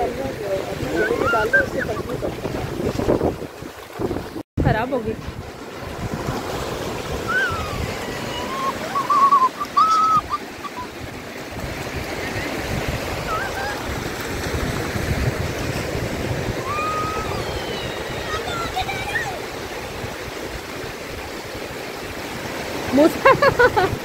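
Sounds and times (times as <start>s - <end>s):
surf washing over sand: 0.0s - 24.0s
short high-pitched cries: 7.3s - 10.9s.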